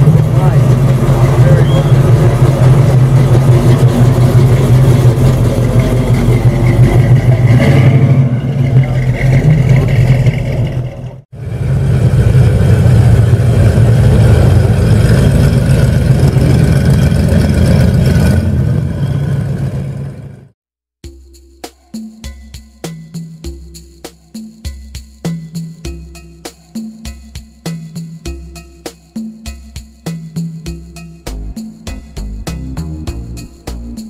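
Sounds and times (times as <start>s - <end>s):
car engine idling: 0.0s - 18.8s.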